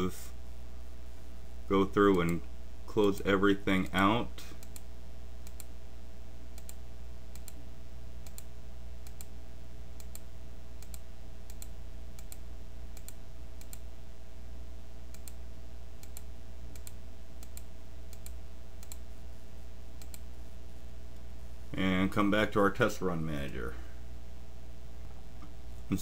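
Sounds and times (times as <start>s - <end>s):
low electrical hum: 0.0s - 26.0s
computer mouse clicking: 4.6s - 5.7s, 6.6s - 7.6s, 8.2s - 9.3s, 10.0s - 12.4s, 13.0s - 13.8s, 15.1s - 15.4s, 16.0s - 19.0s, 20.0s - 20.2s.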